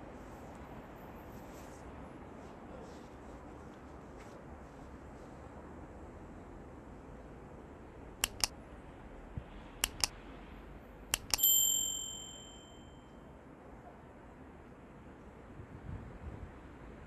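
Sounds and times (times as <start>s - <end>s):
quick mouse clicks: 8.2s - 8.5s, 9.8s - 10.1s, 11.1s - 11.4s
bright bell ding: 11.2s - 13.2s.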